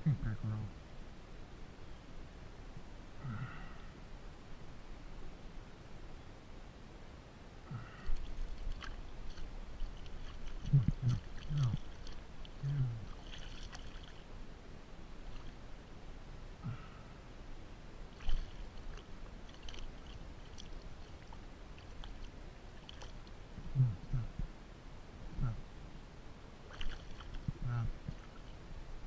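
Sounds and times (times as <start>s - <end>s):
short low-pitched sounds: 3.2s - 3.9s, 10.6s - 11.8s, 12.6s - 13.1s, 23.6s - 24.5s, 25.3s - 25.7s, 27.4s - 28.2s
water dripping: 8.1s - 14.3s, 18.2s - 23.4s
fish splashing at surface: 13.1s - 14.2s, 18.2s - 23.2s, 26.7s - 27.4s.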